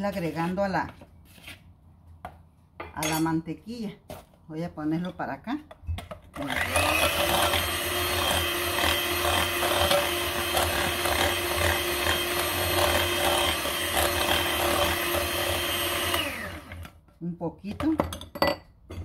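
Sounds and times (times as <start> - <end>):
electric hand mixer whirring: 6.4 - 17.0.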